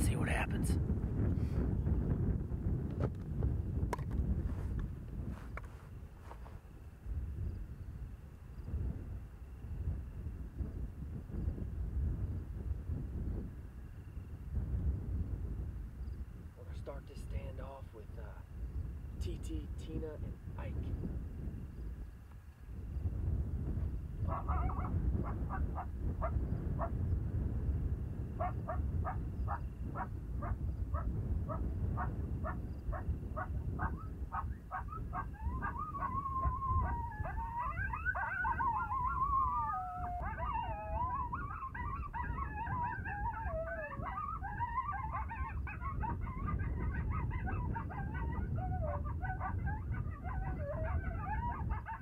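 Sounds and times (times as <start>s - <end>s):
wind rumble on microphone: 0.0s - 52.0s
recorded coyote yips and howls: 24.2s - 27.1s, 28.4s - 52.0s.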